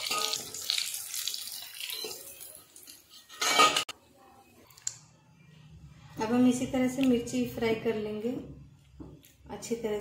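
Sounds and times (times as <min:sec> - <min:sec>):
food sizzling in hot oil: 0:00.0 - 0:03.2
metal spatula clinking and scraping: 0:03.0 - 0:03.9.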